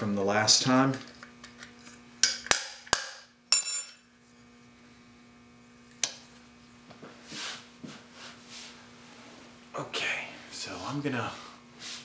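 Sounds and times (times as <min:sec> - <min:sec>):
ringing metallic clink: 0:03.5 - 0:04.0.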